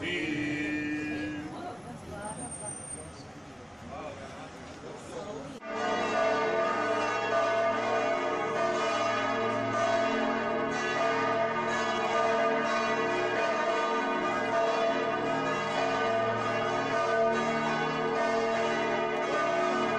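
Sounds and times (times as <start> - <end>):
church bells pealing: 5.6 - 19.9.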